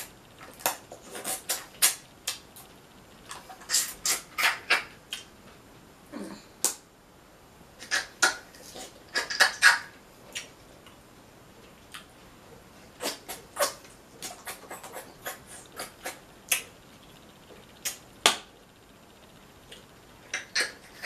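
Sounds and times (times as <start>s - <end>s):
eating noises: 0.0s - 5.3s, 7.8s - 11.0s, 12.9s - 16.8s, 19.6s - 21.0s.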